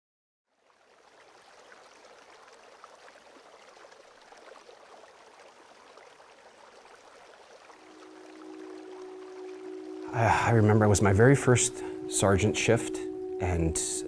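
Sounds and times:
faint running water: 0:00.5 - 0:14.0.

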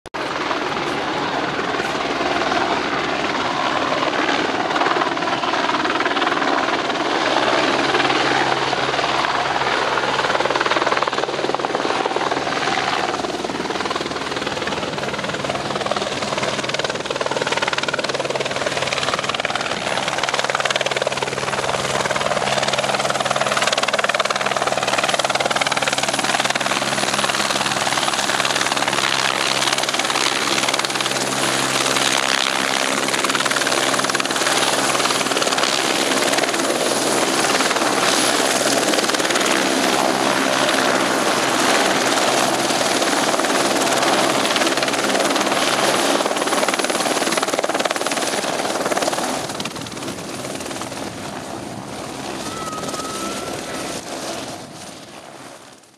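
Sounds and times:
helicopter rotor running: 0:00.2 - 0:55.9.

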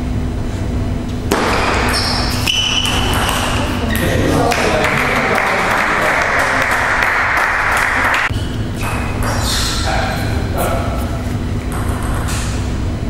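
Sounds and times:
people applauding: 0:04.0 - 0:08.3.

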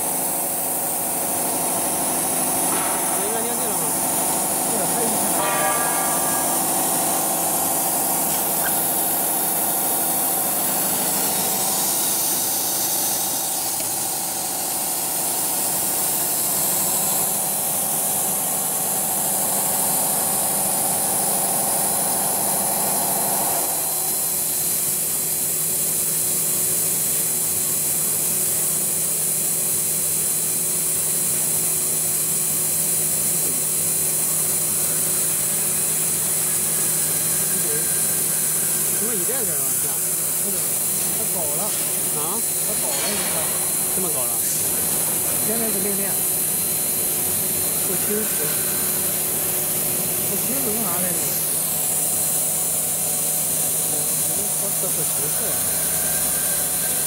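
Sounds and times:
cnc router spindle whine: 0:00.0 - 0:57.0
mechanical hum: 0:00.0 - 0:57.0.

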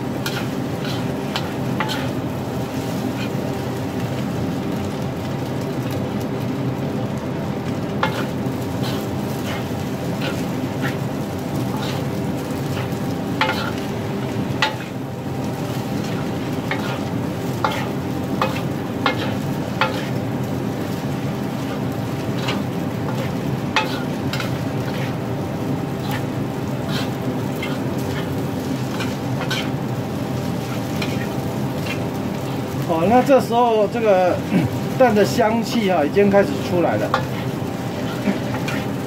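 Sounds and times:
frying sizzle: 0:00.0 - 0:39.0
metal spatula scraping wok: 0:00.2 - 0:02.2, 0:08.0 - 0:13.9, 0:14.5 - 0:15.0, 0:15.8 - 0:29.8, 0:30.5 - 0:32.8, 0:34.7 - 0:39.0.

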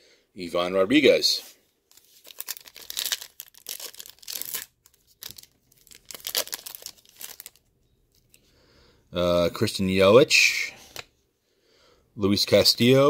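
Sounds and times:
wrapper tearing and crinkling: 0:01.9 - 0:08.3.

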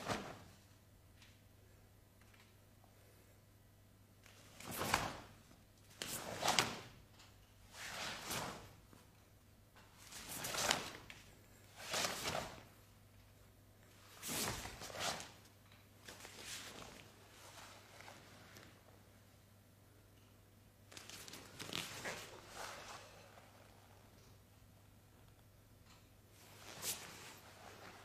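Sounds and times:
cloth swishes: 0:00.0 - 0:00.6, 0:04.4 - 0:05.4, 0:06.0 - 0:06.9, 0:07.7 - 0:08.8, 0:10.0 - 0:11.1, 0:11.8 - 0:12.7, 0:14.0 - 0:15.4, 0:26.4 - 0:28.0
faint steady hum: 0:00.0 - 0:28.0.

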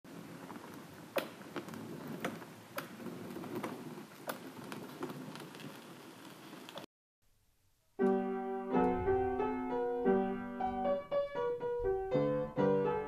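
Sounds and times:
ice cracking and ticking: 0:03.4 - 0:06.9.

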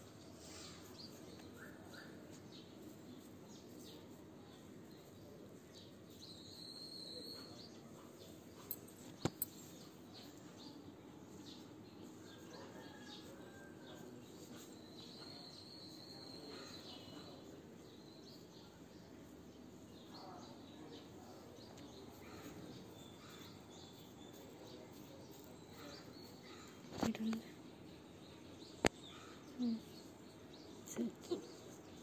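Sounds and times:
faint bird chirps: 0:05.2 - 0:10.8, 0:12.1 - 0:17.6.

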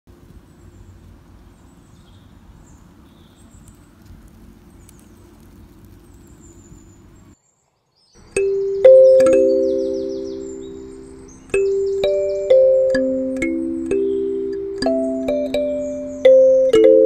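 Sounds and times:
faint bird chirps: 0:04.6 - 0:17.0.

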